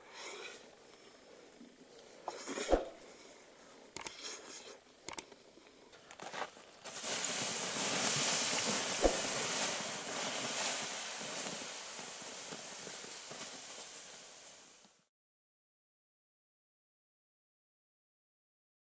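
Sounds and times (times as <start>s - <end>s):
water hissing on hot embers: 0.0s - 3.5s, 5.6s - 15.1s.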